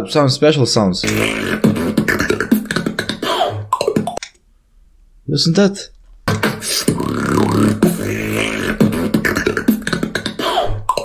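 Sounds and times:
beatbox drum clicks and hits: 1.0 - 4.4, 6.3 - 11.0
gliding vocal tones: 6.4 - 11.0
low bass vocal tone: 6.9 - 8.8.

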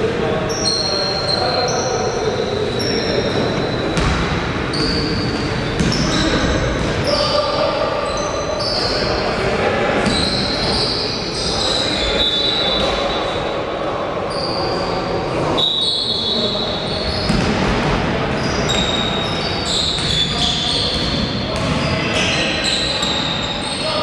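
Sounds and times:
crowd chattering: 0.0 - 24.0
sneakers squeaking: 0.4 - 9.4, 10.0 - 13.5, 14.2 - 24.0
basketball bouncing on court: 4.0 - 5.0, 5.7 - 7.0, 17.1 - 18.0, 20.0 - 20.2, 20.8 - 22.3.

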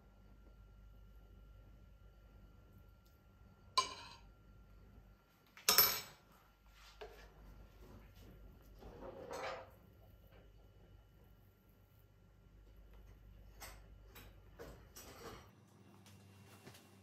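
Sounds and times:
utensils clinking on skillet: 3.8 - 4.3.

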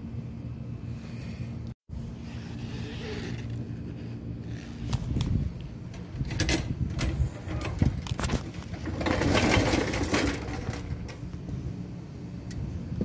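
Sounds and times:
floor jack rattling scrape: 6.2 - 11.2.

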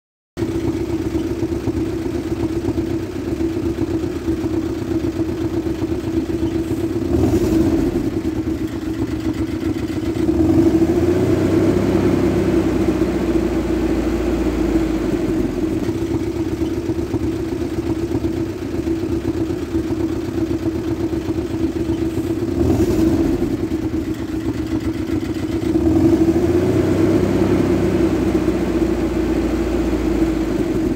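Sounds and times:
vehicle engine revving: 6.3 - 8.6, 9.6 - 16.2, 21.8 - 24.9, 25.5 - 30.9.

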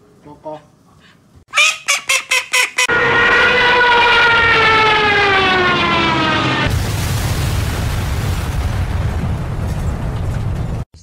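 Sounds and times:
duck quacking loudly: 1.5 - 3.0.

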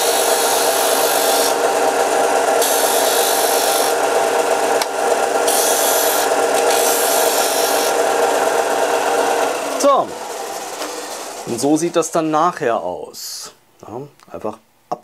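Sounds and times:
wood hissing on abrasive disc: 0.0 - 1.6, 2.6 - 4.0, 5.4 - 8.0
disc sander humming: 0.0 - 12.3.

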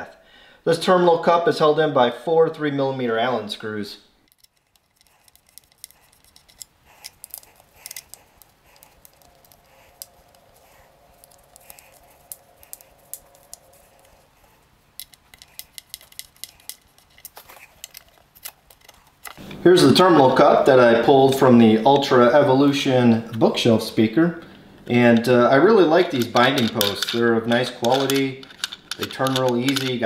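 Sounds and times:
allen key clicking on screws: 4.2 - 10.6, 15.0 - 19.4, 26.1 - 30.0.

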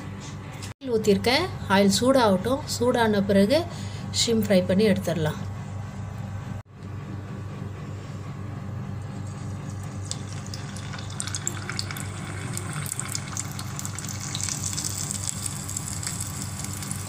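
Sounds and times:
low steady hum: 0.0 - 17.0
shrimp deep-frying in oil: 9.9 - 17.0.

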